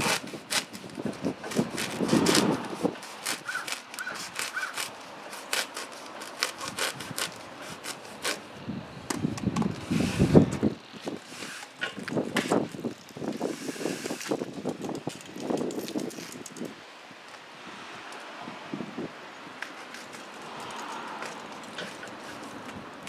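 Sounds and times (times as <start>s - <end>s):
knife scraping foam: 0.0s - 8.5s.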